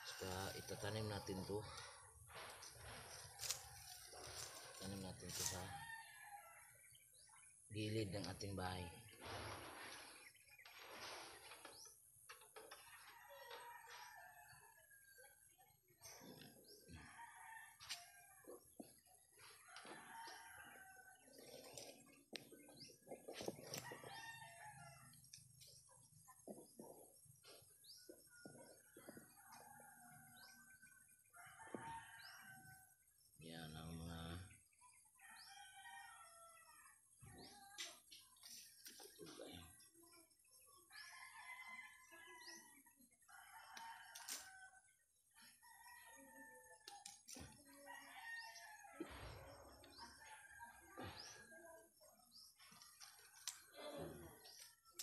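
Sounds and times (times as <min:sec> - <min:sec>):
rooster crowing and clucking: 0:02.3 - 0:06.7, 0:12.7 - 0:15.1, 0:16.7 - 0:21.4, 0:23.5 - 0:25.2, 0:28.0 - 0:33.0, 0:40.9 - 0:51.6.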